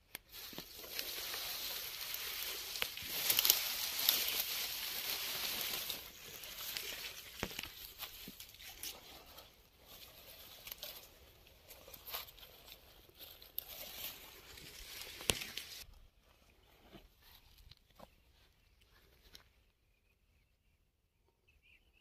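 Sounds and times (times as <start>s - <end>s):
small crackles: 0.0s - 15.9s
cloth and dry grass rustling: 0.0s - 19.6s.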